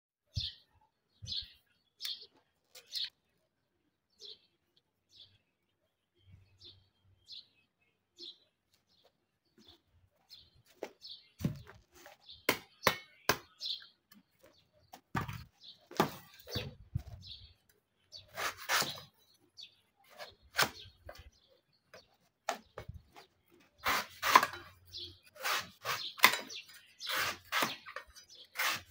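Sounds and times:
small bird chirping: 0.2s - 3.4s.

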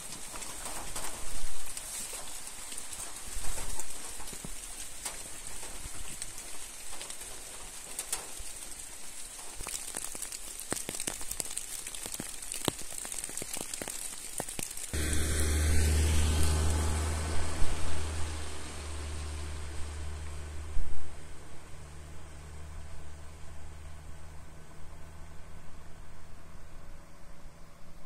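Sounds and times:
raindrops ticking on surfaces: 0.0s - 24.3s
light rain pattering: 0.0s - 27.6s.

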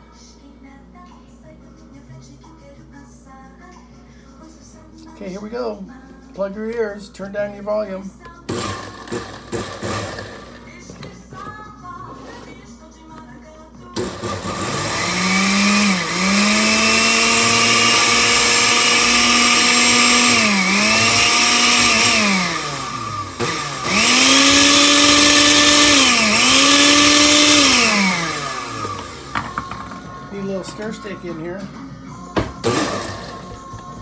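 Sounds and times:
blender motor blending: 8.5s - 10.6s, 14.0s - 29.8s, 32.6s - 33.6s.

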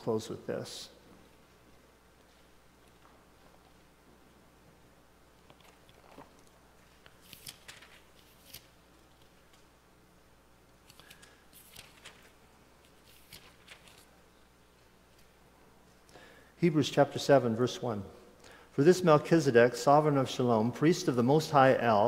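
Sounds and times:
thin pages rustling: 5.4s - 9.6s, 10.9s - 14.1s.

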